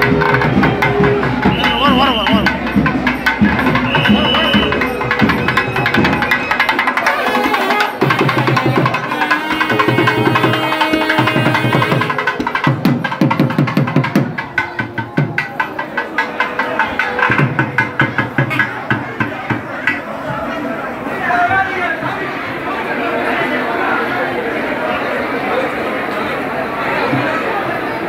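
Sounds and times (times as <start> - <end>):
sustained melody: 0.0 - 12.9
barrel drum beaten rhythmically: 0.0 - 20.0.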